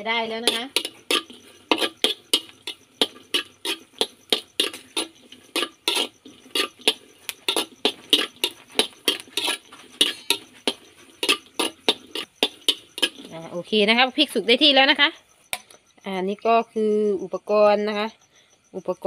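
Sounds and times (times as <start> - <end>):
metal spoon scraping a wok: 0.0 - 13.5.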